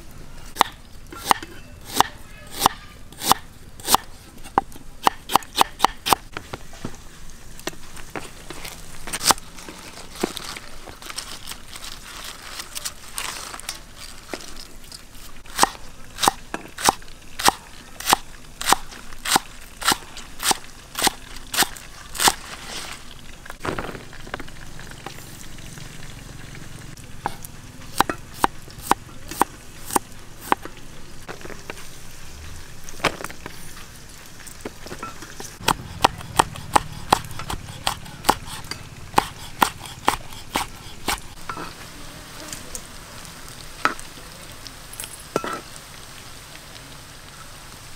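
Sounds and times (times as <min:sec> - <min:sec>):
knife chopping on wooden board: 0:00.6 - 0:06.2, 0:35.6 - 0:41.4.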